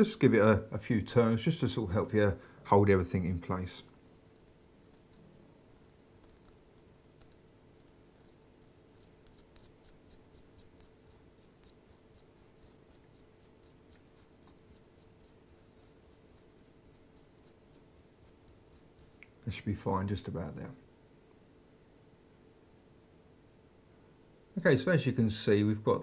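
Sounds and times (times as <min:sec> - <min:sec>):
scratchy ticking of metal ring: 0:03.9 - 0:19.2.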